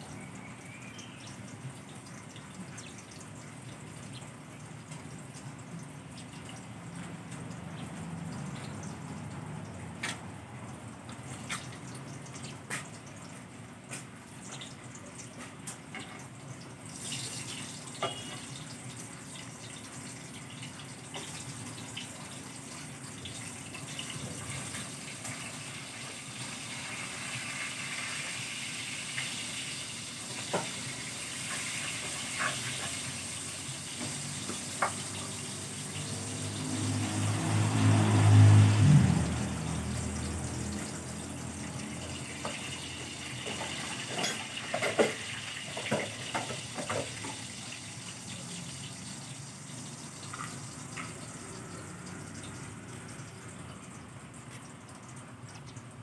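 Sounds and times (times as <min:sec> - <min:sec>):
water spraying from a hose: 0:16.8 - 0:55.2.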